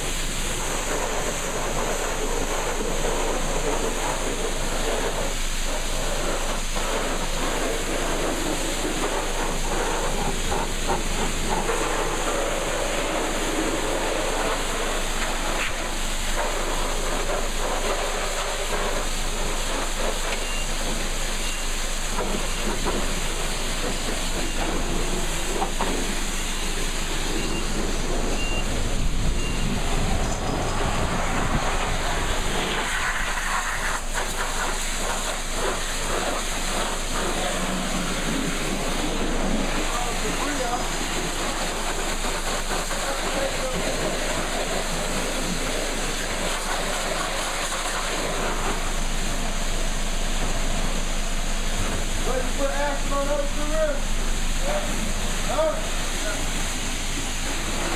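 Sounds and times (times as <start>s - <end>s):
pressure washer spray hissing: 0.0s - 57.9s.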